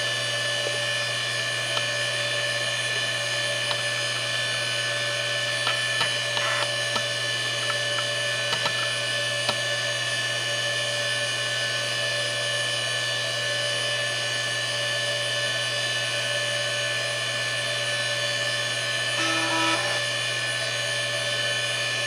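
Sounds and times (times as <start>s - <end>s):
hard drive whine: 0.0s - 11.3s, 16.1s - 22.0s.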